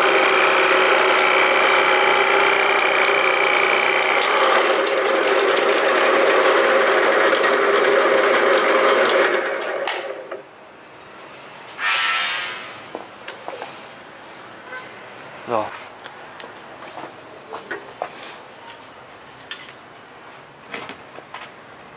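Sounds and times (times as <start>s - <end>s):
drill press boring into wood: 0.0s - 10.4s.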